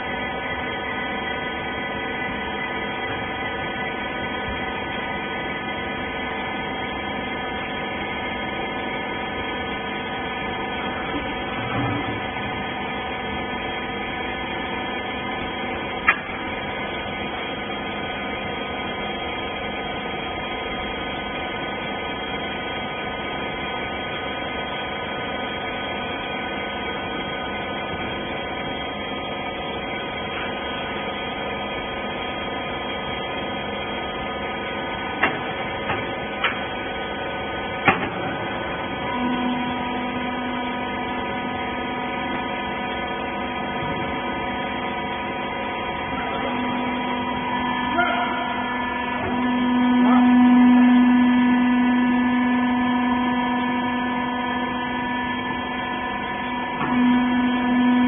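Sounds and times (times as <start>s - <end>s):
hydraulic baler motor humming: 0.0s - 58.0s
louder machine tone: 38.4s - 58.0s.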